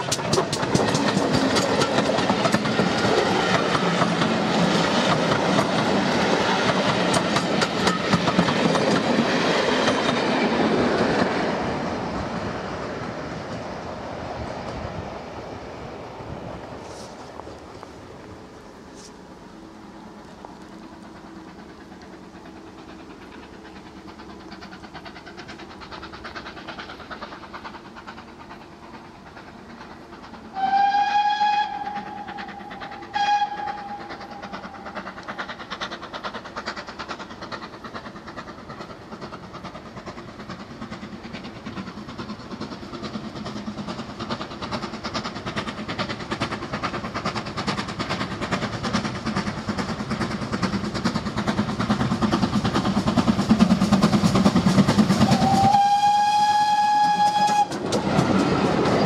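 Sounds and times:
steam locomotive exhaust beat: 0:00.0 - 0:59.0
train running noise: 0:00.0 - 0:59.0
steam locomotive whistle: 0:30.5 - 0:35.0, 0:55.2 - 0:59.0.

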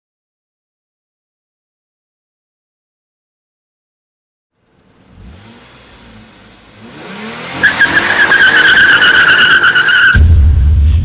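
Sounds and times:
race car engine revving: 0:04.6 - 0:10.2
high-pitched tire squeal: 0:06.8 - 0:10.2.

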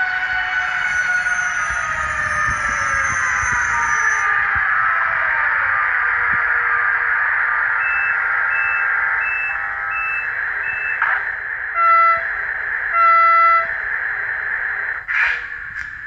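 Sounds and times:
short high beeps: 0:07.8 - 0:11.0
train horn blasts: 0:11.8 - 0:12.3, 0:12.9 - 0:13.7.

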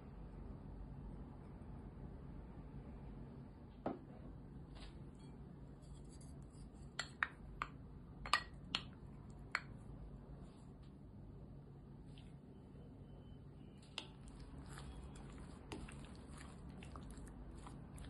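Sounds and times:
spatula tapping glass bowl: 0:07.0 - 0:09.8.

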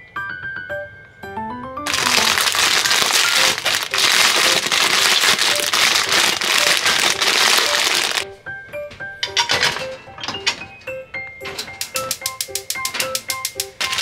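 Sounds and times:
dried noodles crunching: 0:01.9 - 0:08.2
plastic packet crinkling: 0:01.9 - 0:08.2, 0:13.6 - 0:14.0.

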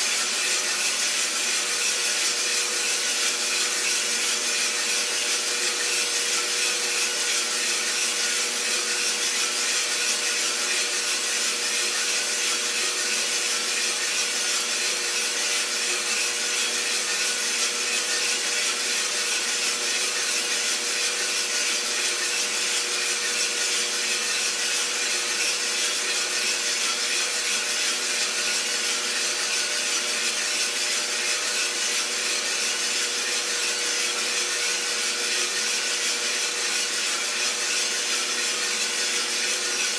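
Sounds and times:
coffee roaster fan and motor: 0:00.0 - 0:39.9.

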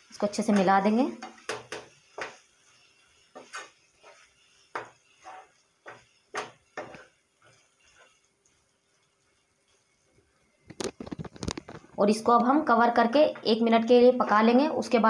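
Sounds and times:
wooden spatula scraping frying pan: 0:00.2 - 0:10.1, 0:10.7 - 0:12.1.

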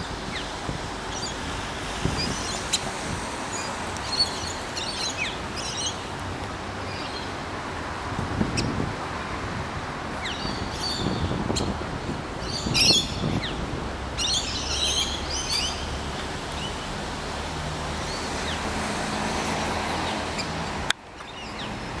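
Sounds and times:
rain hissing: 0:00.0 - 0:07.0.

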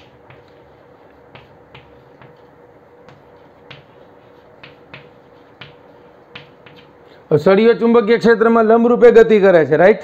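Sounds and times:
chalk tapping on chalkboard: 0:00.0 - 0:07.1
faint steady hum: 0:00.0 - 0:08.6.

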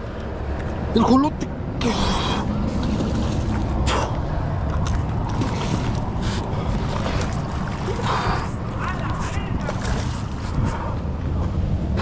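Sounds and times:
wind buffeting microphone: 0:02.5 - 0:12.0.

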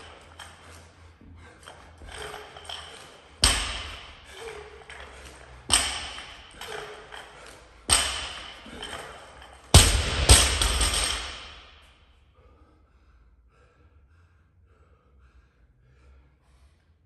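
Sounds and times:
barbell plates rattling: 0:00.0 - 0:11.8
barbell thudding on floor: 0:03.4 - 0:04.3, 0:05.7 - 0:06.8, 0:07.9 - 0:09.0, 0:09.7 - 0:11.7.

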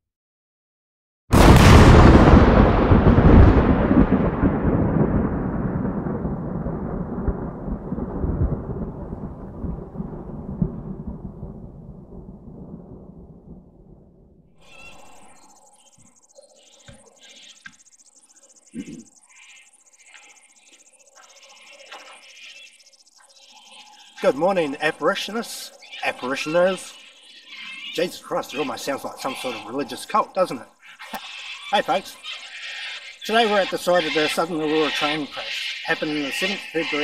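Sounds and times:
insects chirring: 0:01.4 - 0:13.6, 0:14.5 - 0:37.0
deep rumble of boom: 0:01.4 - 0:15.4.

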